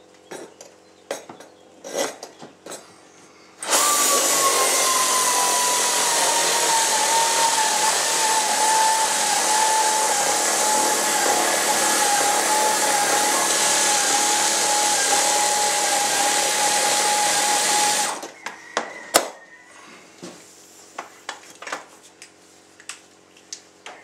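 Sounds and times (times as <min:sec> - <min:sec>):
power drill running: 0:03.6 - 0:18.3.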